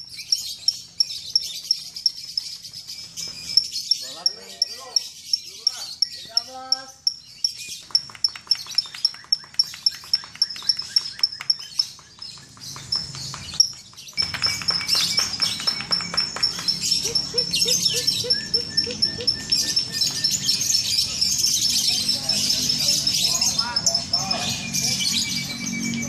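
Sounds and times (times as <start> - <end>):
birds chirping: 0.0 - 26.0
many birds chattering: 0.0 - 26.0.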